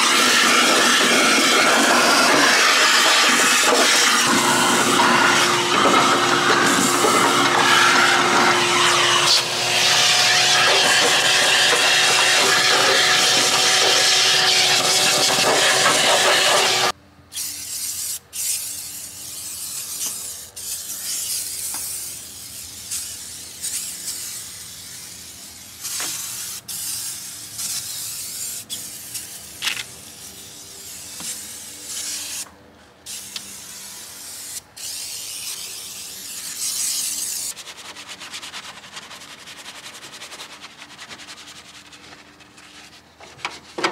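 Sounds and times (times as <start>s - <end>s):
vacuum running: 0.0s - 16.9s
brush scrubbing: 36.5s - 43.9s.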